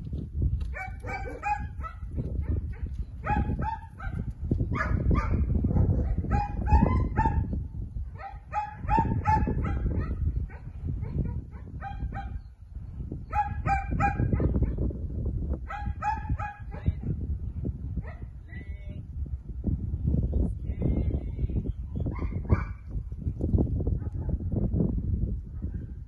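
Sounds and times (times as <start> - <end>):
wind rumble on microphone: 0.0 - 26.0
dog barking: 0.7 - 7.4, 8.2 - 12.4, 13.3 - 14.8, 15.7 - 16.8, 18.0 - 18.3.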